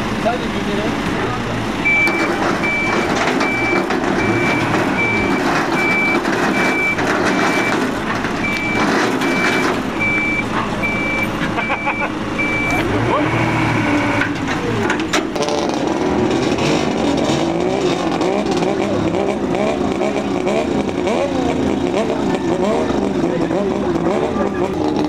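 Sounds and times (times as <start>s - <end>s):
engine rumbling and revving: 0.0s - 25.0s
engines running: 0.0s - 25.0s
reversing alarm beeps: 1.8s - 14.3s.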